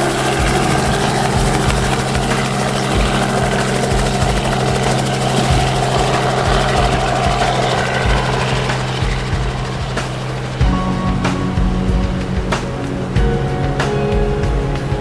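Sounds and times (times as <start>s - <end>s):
helicopter engine and rotor drone: 0.0s - 14.9s.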